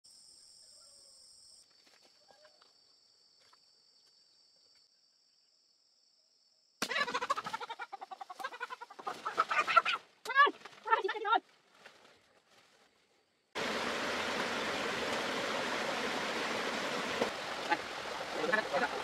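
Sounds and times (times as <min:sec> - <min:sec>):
chickens squawking and clucking: 0:06.9 - 0:10.0.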